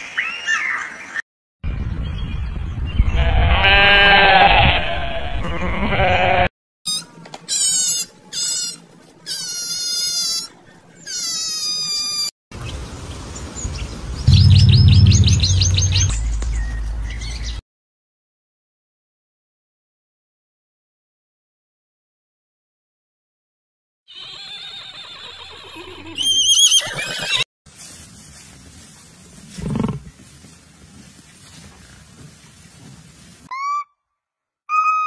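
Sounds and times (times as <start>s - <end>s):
high chirps: 14.3s - 16.8s
low hum: 14.3s - 17.3s.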